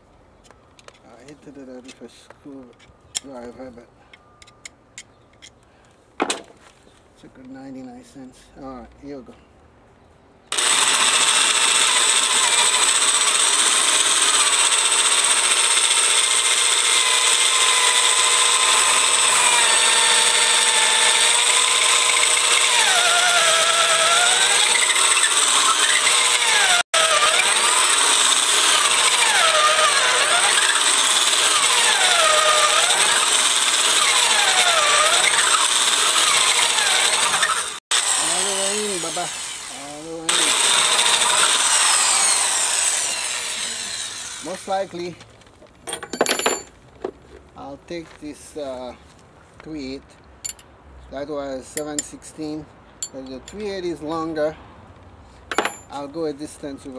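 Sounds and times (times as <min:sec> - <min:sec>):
electric drill boring into wood: 0:10.5 - 0:44.8.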